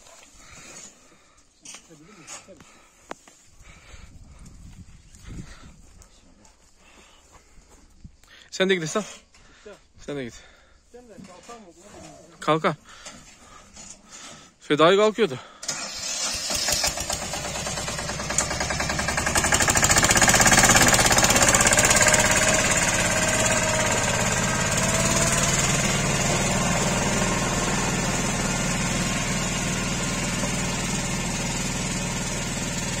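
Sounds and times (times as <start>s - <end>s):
diesel tractor engine chugging: 15.6s - 33.0s.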